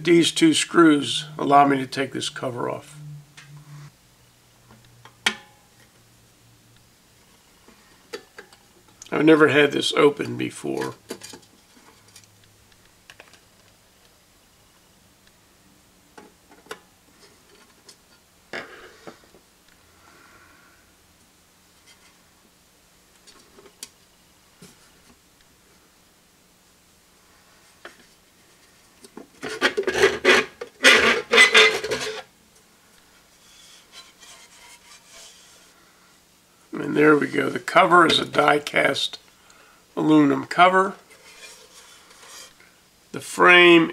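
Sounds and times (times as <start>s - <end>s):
metal cover scraping housing: 29.4s - 32.3s, 33.4s - 35.8s, 41.0s - 42.6s
faint rubbing: 33.2s - 35.8s, 41.0s - 42.8s.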